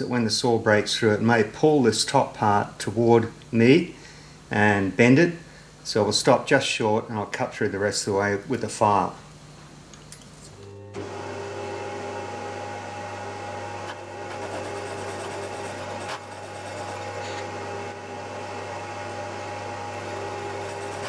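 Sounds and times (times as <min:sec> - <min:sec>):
milling machine motor hum: 0:10.5 - 0:21.0.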